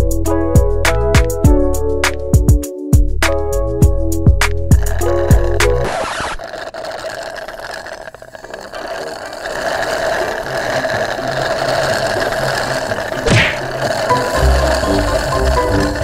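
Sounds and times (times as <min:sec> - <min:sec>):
slurping drink through straws: 0:04.7 - 0:16.0.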